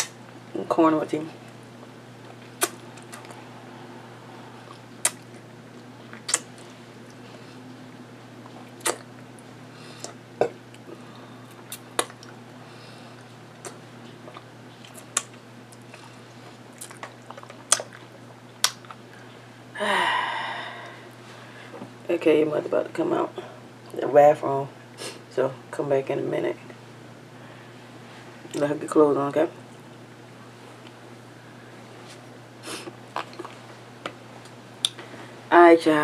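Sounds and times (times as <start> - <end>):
chewing and licking fingers: 2.3 - 3.4, 13.2 - 19.3, 33.1 - 35.0
wet mouth clicks and smacks: 2.6 - 3.4, 4.6 - 5.4, 6.1 - 6.6, 8.8 - 9.1, 11.6 - 12.4, 16.8 - 18.0, 18.6 - 19.0.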